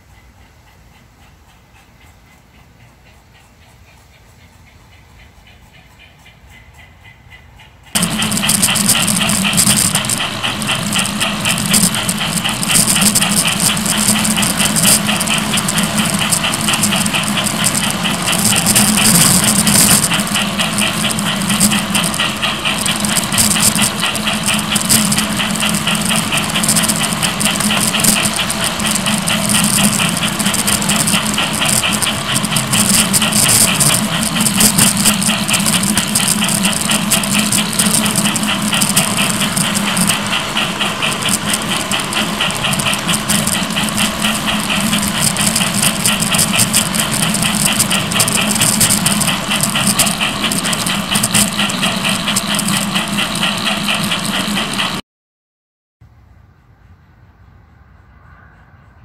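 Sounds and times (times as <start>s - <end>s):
model train motor hum: 0.0s - 55.0s
wheels clicking on rails: 0.0s - 55.0s.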